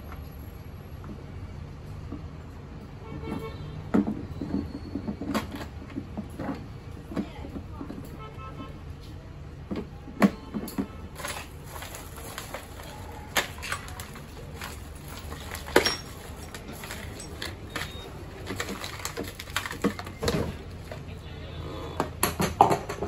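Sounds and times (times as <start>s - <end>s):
hard plastic parts clicking: 9.7s - 21.0s
plastic bag rustling: 11.1s - 21.0s.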